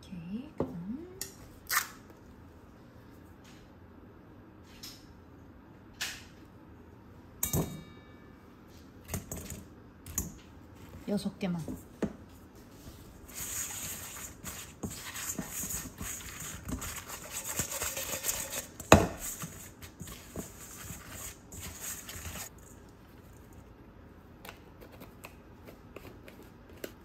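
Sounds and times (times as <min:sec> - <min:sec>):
spatula scraping bowl: 0:13.2 - 0:22.5.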